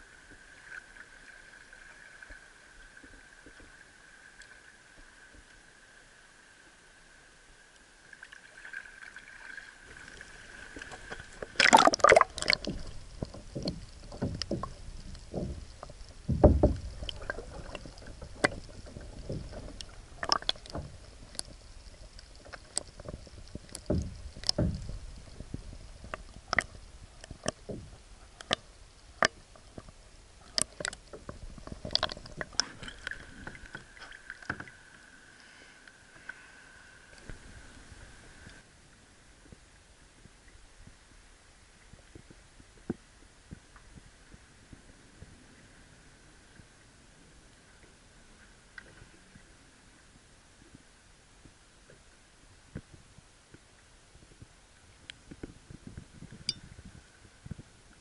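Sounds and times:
underwater clicks: 0:09.9 - 0:34.8
dull underwater knocks: 0:10.7 - 0:21.6, 0:22.4 - 0:30.0, 0:30.6 - 0:34.8
camera splashing into water: 0:11.5 - 0:12.7.

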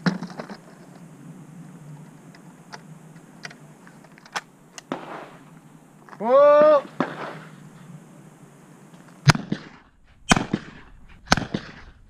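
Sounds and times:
shotgun shots with echo: 0:04.9 - 0:05.4, 0:06.6 - 0:07.5, 0:09.2 - 0:12.0.

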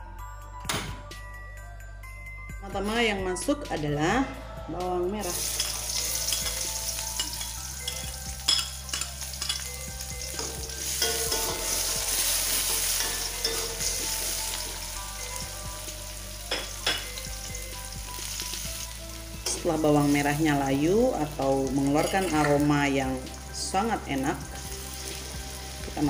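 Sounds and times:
shallots sizzling in hot oil: 0:05.2 - 0:26.0.

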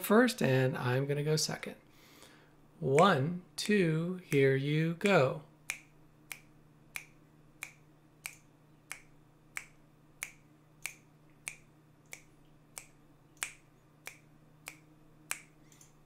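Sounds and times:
faint low hum: 0:00.0 - 0:16.0
finger snaps: 0:05.7 - 0:16.0.

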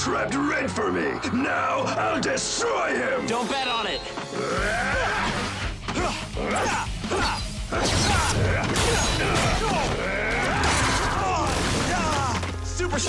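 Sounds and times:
action music: 0:00.0 - 0:13.0
grunts and shouts: 0:04.2 - 0:12.4.

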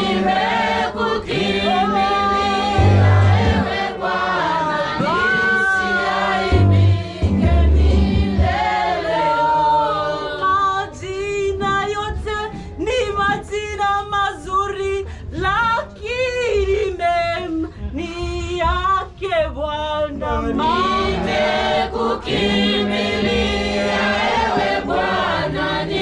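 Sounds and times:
choir singing gospel song: 0:00.0 - 0:12.6, 0:20.2 - 0:26.0.

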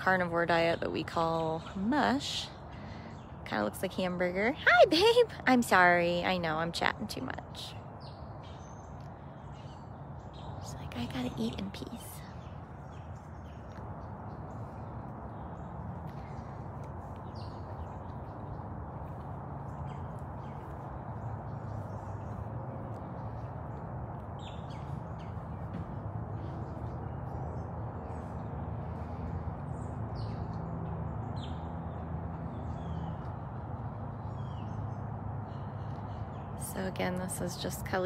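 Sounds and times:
steady low hum: 0:00.0 - 0:38.0.

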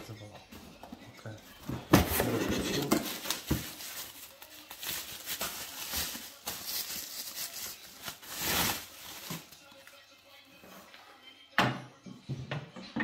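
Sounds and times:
bubble wrap crinkling: 0:02.8 - 0:10.1.

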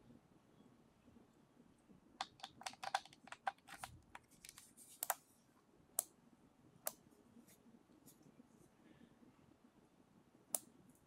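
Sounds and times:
small plastic clicks and taps: 0:02.2 - 0:05.2.

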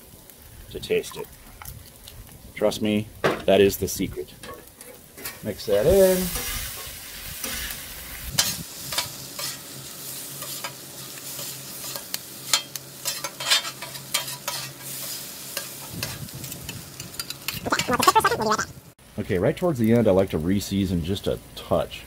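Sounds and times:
rice sizzling on a griddle: 0:00.0 - 0:17.7, 0:19.0 - 0:22.0
metal spatulas scraping and chopping: 0:08.4 - 0:09.6, 0:11.4 - 0:16.2.

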